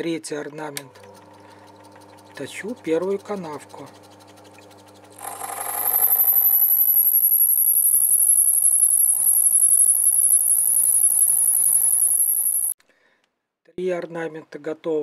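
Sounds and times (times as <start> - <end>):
lathe low hum: 0.8 - 12.8
high-pitched cutting whine: 4.7 - 12.8.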